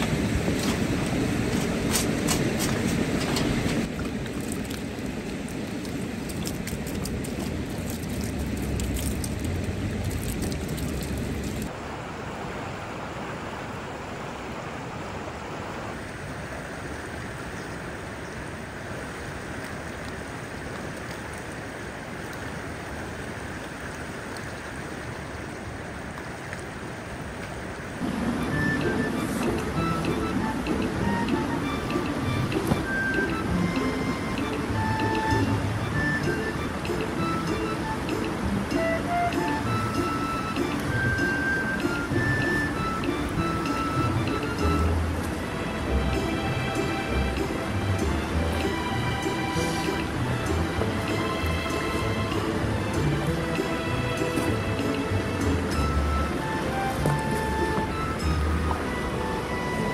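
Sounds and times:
river flowing over stones: 0:00.0 - 0:59.9.

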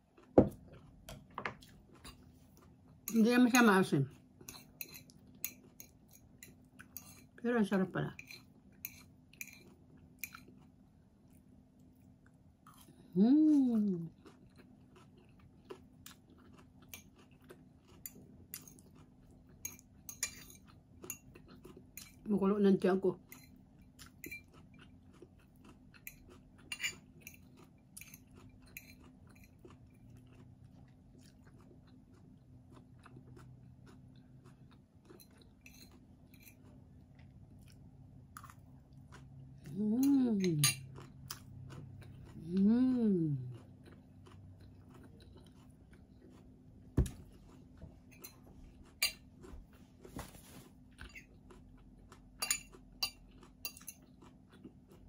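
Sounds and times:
person chewing and crunching: 0:00.0 - 0:03.2, 0:08.3 - 0:22.3, 0:23.2 - 0:55.0
person humming: 0:42.4 - 0:43.5.

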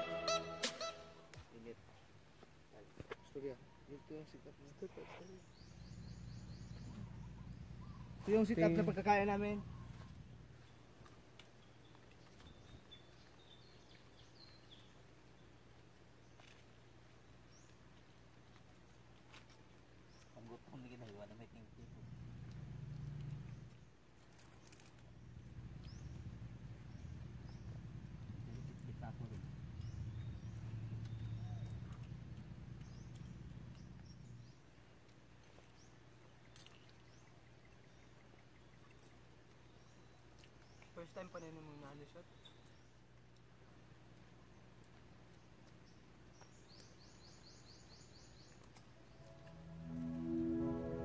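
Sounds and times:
faint low hum: 0:00.0 - 0:51.0
faint bird chirps: 0:02.7 - 0:08.5, 0:28.4 - 0:32.0.

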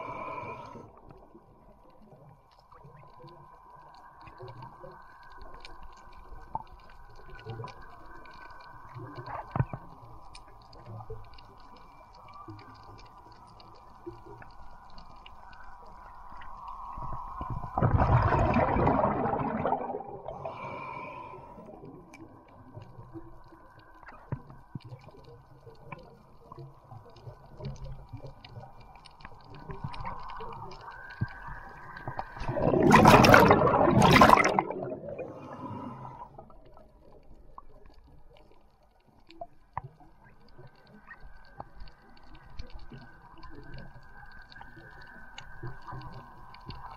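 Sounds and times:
diver exhaling air bubbles: 0:17.7 - 0:21.1, 0:32.2 - 0:36.3.

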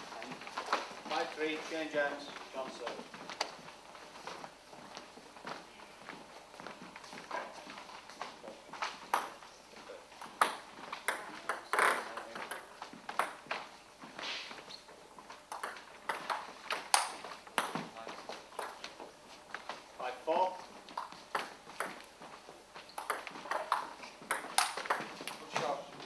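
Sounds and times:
table tennis ball clicking: 0:15.5 - 0:17.8, 0:23.0 - 0:25.4.

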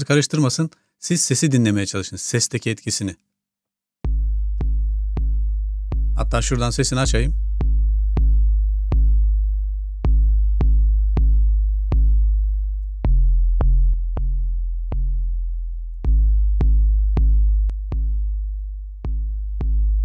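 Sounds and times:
hip-hop drum-machine beat with bass: 0:04.1 - 0:15.2, 0:16.0 - 0:20.0.

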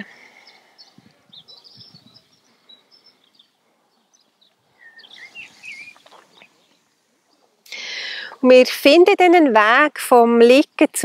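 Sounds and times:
small birds chirping: 0:00.0 - 0:08.5
outdoor background hiss: 0:00.0 - 0:11.0.

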